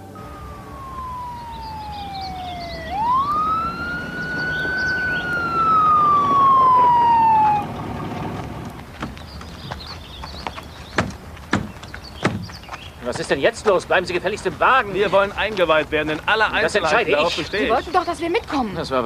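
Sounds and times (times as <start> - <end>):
police siren wailing: 0.0 - 8.8
vehicle low rumble: 0.0 - 18.4.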